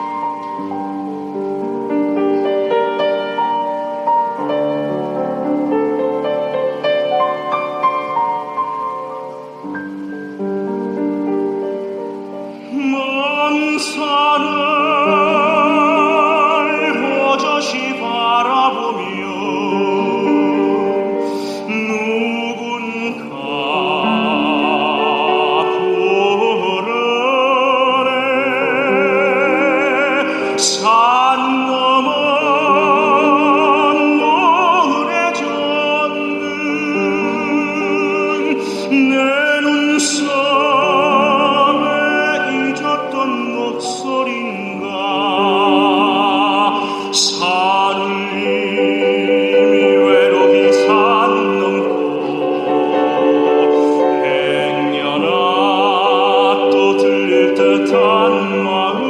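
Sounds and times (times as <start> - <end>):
operatic singing with accompaniment: 12.1 - 59.0.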